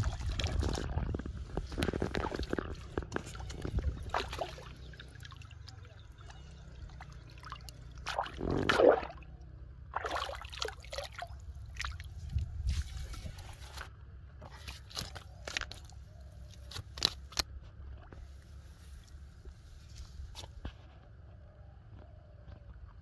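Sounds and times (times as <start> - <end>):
fish splashing at water surface: 2.2 - 5.7, 6.4 - 12.2.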